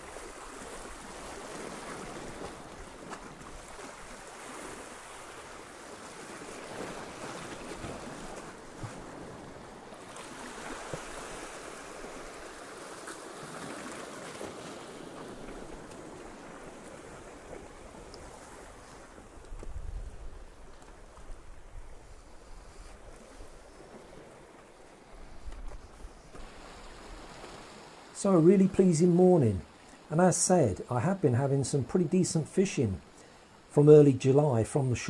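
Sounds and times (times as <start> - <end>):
waves washing over rocks: 0.0 - 19.4.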